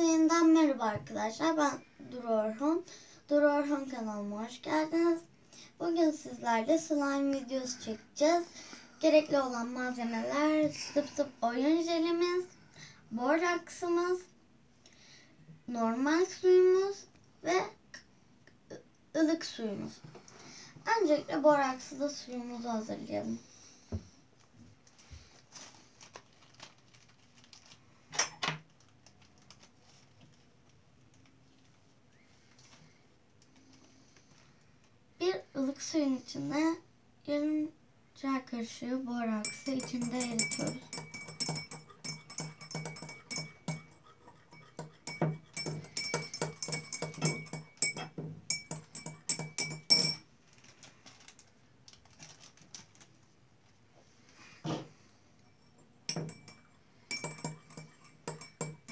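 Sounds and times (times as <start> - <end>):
crinkling scrapes: 24.8 - 27.9, 50.4 - 53.3
teaspoon clinking in glass: 39.4 - 50.2, 55.6 - 58.9.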